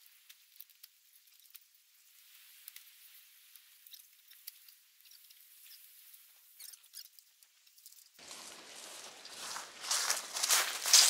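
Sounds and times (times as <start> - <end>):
faint ticks and clicks: 0.0 - 8.2.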